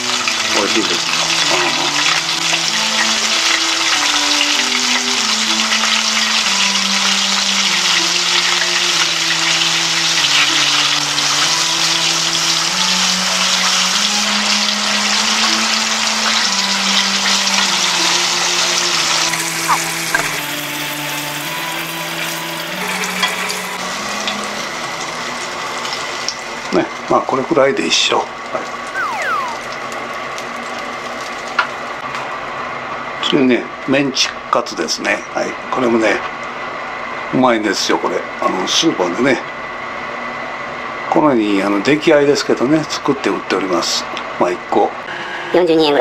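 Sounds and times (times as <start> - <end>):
food sizzling in hot oil: 0.0 - 26.7
background melody of held notes: 29.0 - 30.0.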